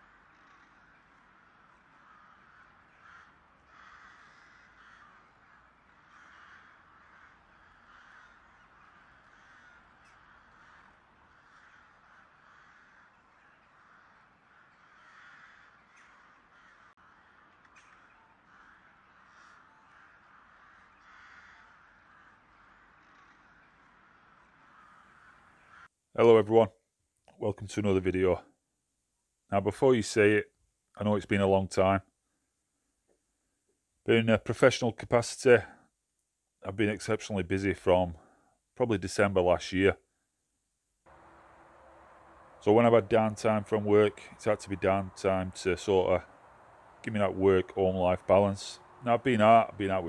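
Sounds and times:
crows cawing: 0.0s - 26.0s, 41.1s - 50.0s.

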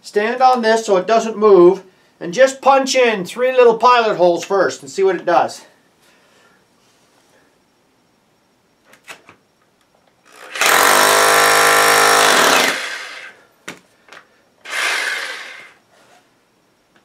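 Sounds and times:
hammer drill into concrete: 10.3s - 13.4s, 14.6s - 15.8s.

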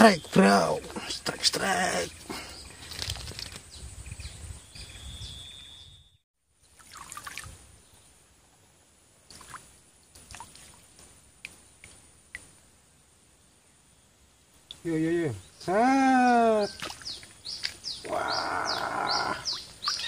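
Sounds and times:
small water splashes and trickling: 1.6s - 3.6s, 6.6s - 7.8s, 9.2s - 12.6s, 16.2s - 20.0s.

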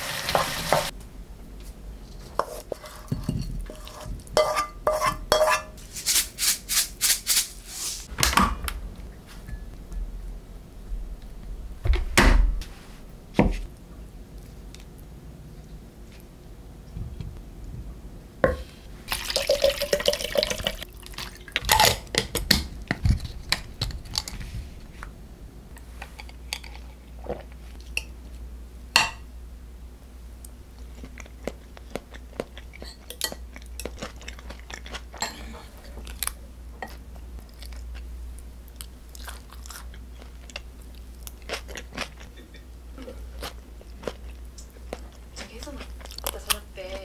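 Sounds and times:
metal ladle scraping a plate: 2.3s - 5.8s
quiet chewing: 30.4s - 47.0s.

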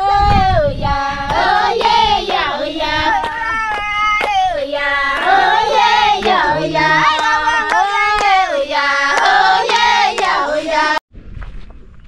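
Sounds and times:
high voices singing together: 0.0s - 11.0s
hand claps: 1.3s - 2.5s, 3.1s - 4.5s, 5.2s - 8.5s, 9.1s - 10.4s.

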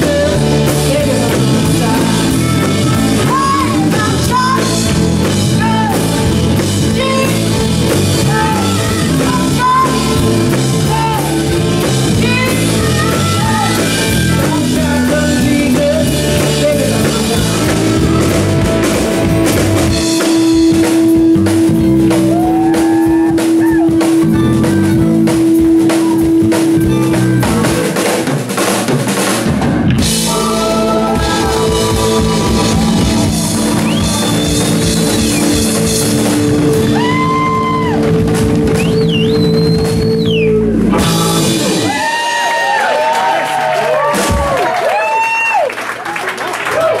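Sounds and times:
live rock band playing: 0.0s - 45.0s
audience cheering and whistling: 22.2s - 24.1s, 30.3s - 40.9s, 41.7s - 47.0s.

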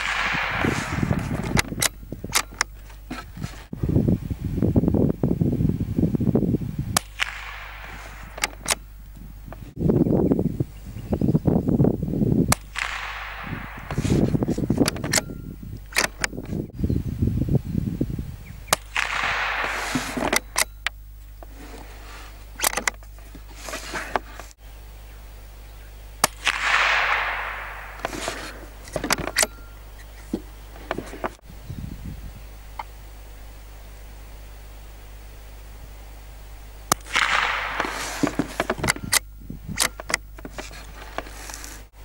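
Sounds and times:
rifle shots: 0.0s - 2.6s, 7.0s - 9.0s, 12.5s - 15.3s, 18.7s - 20.9s, 26.2s - 29.7s, 36.9s - 39.2s
wind buffeting microphone: 0.0s - 22.6s, 26.7s - 32.7s, 37.1s - 42.0s.

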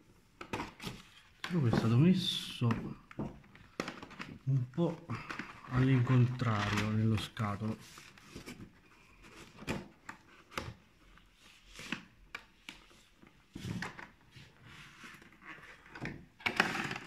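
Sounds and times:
plastic film rustling: 3.5s - 8.8s.

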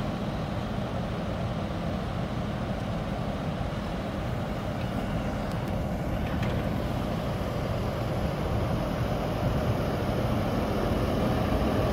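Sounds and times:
tractor engine running: 3.1s - 11.9s.

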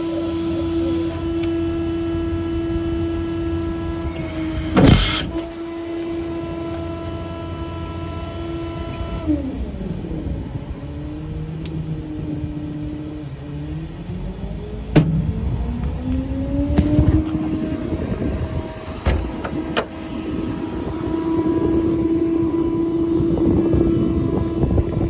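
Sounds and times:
machine whining: 0.0s - 25.0s
loud thump: 14.9s - 15.9s, 19.0s - 19.9s.

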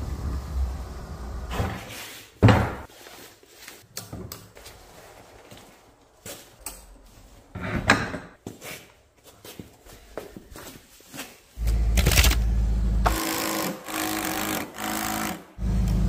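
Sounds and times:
vehicle engine rumbling: 11.6s - 13.1s.

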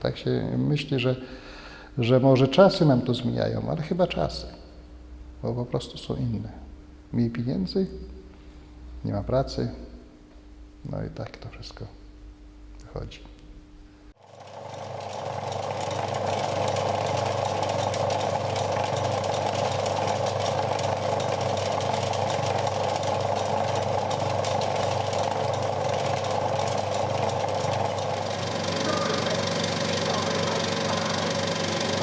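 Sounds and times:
low hum: 3.1s - 32.0s
film projector clattering: 14.2s - 32.0s.

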